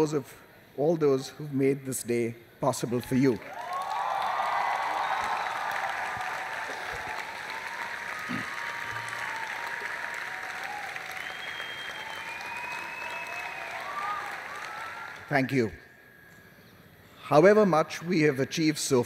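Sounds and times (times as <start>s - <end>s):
voices whooping: 3.0s - 15.5s
crowd clapping: 3.4s - 15.6s.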